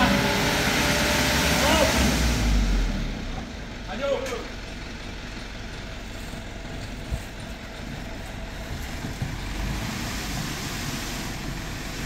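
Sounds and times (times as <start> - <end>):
diesel engine running: 0.0 - 12.0
hiss: 9.8 - 12.0.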